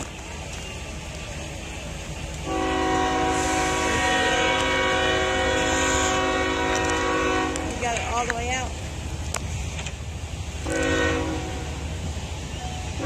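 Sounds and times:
train air horn chord: 2.5s - 7.8s, 10.6s - 11.8s.

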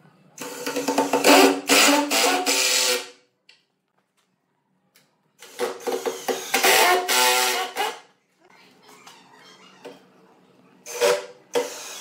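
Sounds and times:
impact driver driving screws into wood: 5.4s - 8.0s.

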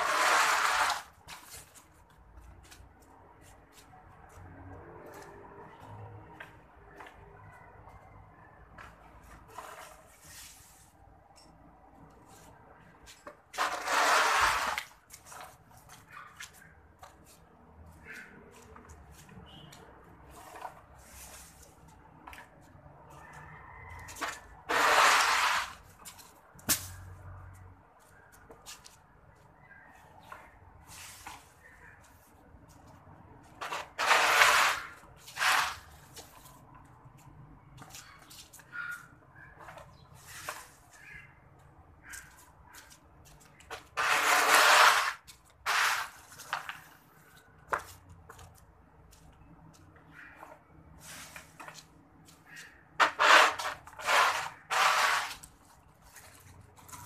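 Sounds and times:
broom sweeping concrete floor: 0.0s - 2.0s, 9.3s - 11.0s, 13.2s - 15.5s, 20.3s - 22.0s, 24.2s - 25.9s, 30.8s - 31.6s, 33.6s - 36.6s, 44.0s - 46.7s, 51.0s - 51.9s, 53.0s - 56.4s.

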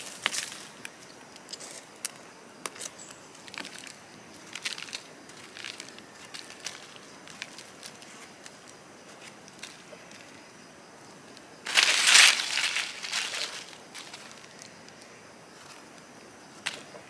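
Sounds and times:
dry leaves rustling and crackling: 0.0s - 1.0s, 2.8s - 10.3s, 11.6s - 15.8s.

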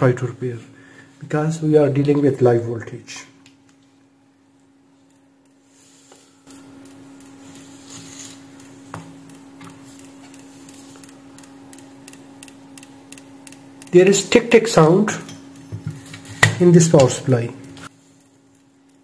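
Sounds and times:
faint steady hum: 0.0s - 19.0s
power supply ticking: 4.4s - 5.7s, 6.4s - 19.0s.

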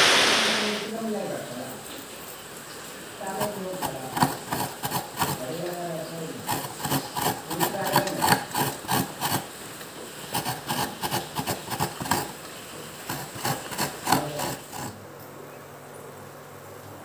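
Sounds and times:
coconut rasping on metal scraper: 3.3s - 9.5s, 10.2s - 12.4s, 13.0s - 15.0s.

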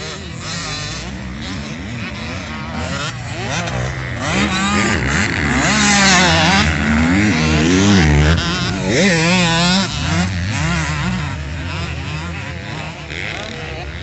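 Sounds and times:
motocross bike revving: 0.0s - 14.0s.

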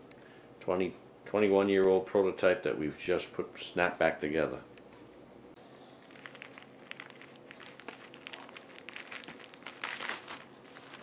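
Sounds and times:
plastic bag crinkling: 6.0s - 11.0s.

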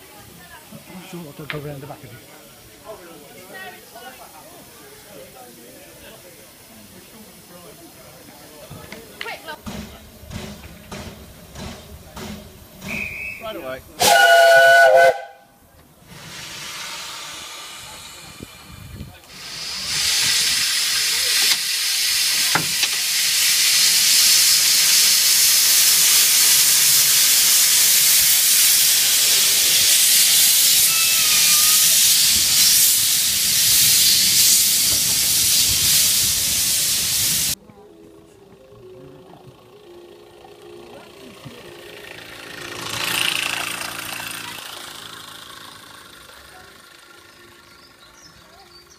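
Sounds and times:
steam hissing from locomotive: 0.0s - 15.3s, 16.0s - 37.6s.

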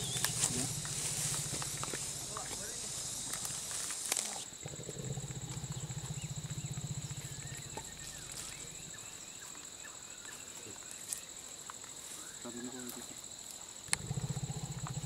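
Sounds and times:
elephant snoring: 0.0s - 9.2s, 13.9s - 15.0s.

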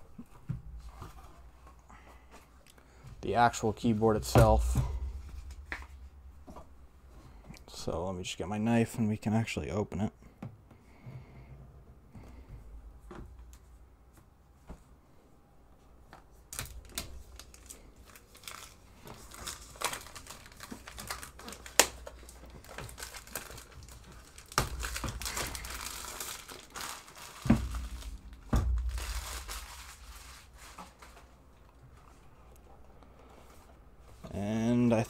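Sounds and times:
dull thumps: 4.1s - 7.5s, 27.4s - 29.6s
plastic wrapping crinkling: 16.4s - 31.8s.

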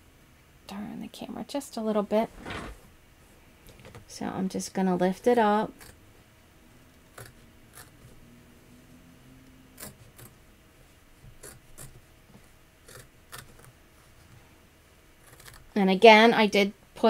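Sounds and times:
scissors snipping fabric: 15.2s - 15.7s.

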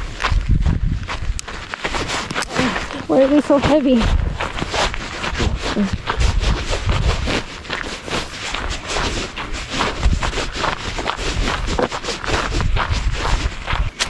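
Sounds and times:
footsteps on gravel: 0.0s - 14.0s
wind on microphone: 0.0s - 14.0s.

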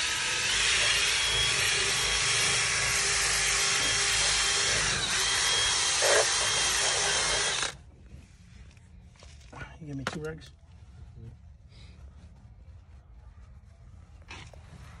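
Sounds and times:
drill with spinning scrub brush: 0.0s - 7.8s.

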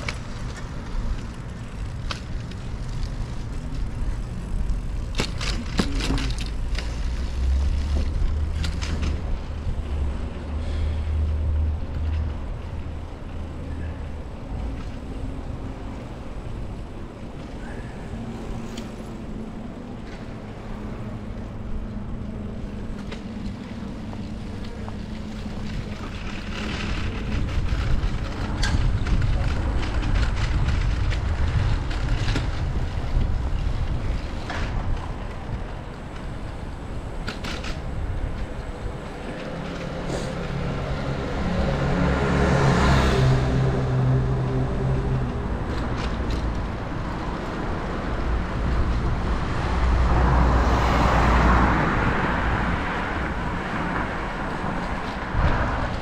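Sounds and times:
bicycle tyre noise: 0.0s - 56.0s
passing traffic rumble: 0.0s - 56.0s
wind on microphone: 25.6s - 35.9s.

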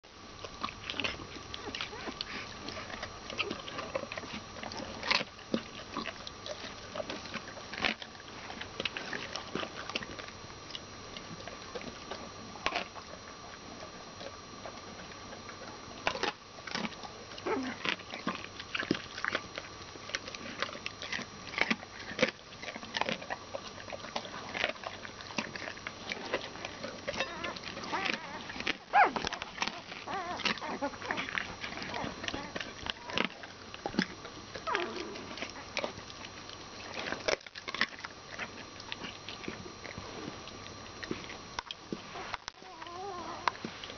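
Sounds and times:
puppies sucking: 0.4s - 43.9s
puppies squeaking and grunting: 0.9s - 5.2s, 25.4s - 34.0s, 42.1s - 43.7s.

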